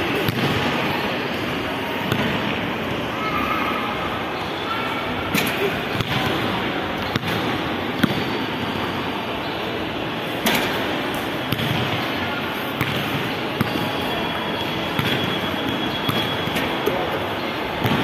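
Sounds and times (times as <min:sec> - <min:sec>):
steady background din: 0:00.0 - 0:18.0
basketball bouncing: 0:00.1 - 0:00.8, 0:02.0 - 0:02.6, 0:05.9 - 0:06.4, 0:07.0 - 0:08.4, 0:11.5 - 0:12.1, 0:12.8 - 0:14.0, 0:14.9 - 0:16.6, 0:17.8 - 0:18.0.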